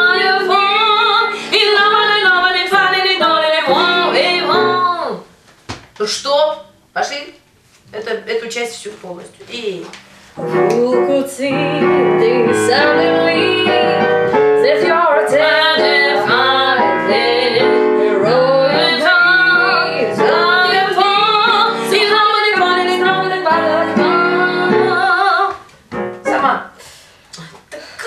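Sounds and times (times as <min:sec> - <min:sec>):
woman singing jazz song: 0:00.0 - 0:05.2, 0:10.5 - 0:25.7
instrumental accompaniment: 0:01.8 - 0:05.0, 0:10.4 - 0:26.8.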